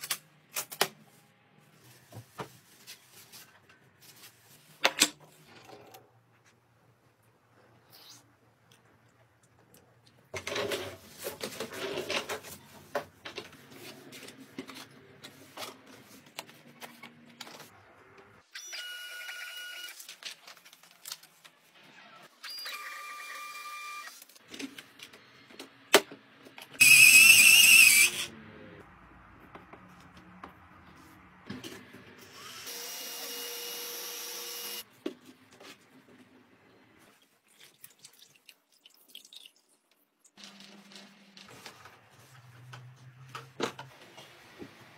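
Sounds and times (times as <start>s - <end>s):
small electric motor whirring: 26.8s - 28.3s, 32.3s - 34.8s.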